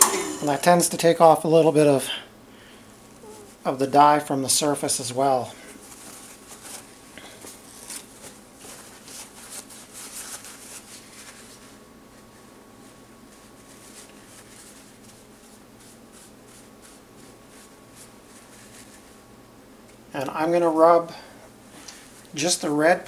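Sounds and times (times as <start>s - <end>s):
faint steady hum: 0.0s - 23.0s
paper towel rustling: 4.5s - 19.2s.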